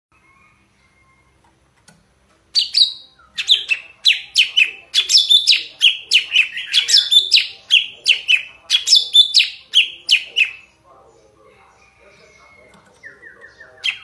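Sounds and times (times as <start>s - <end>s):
bird singing whistled notes: 2.6s - 10.7s.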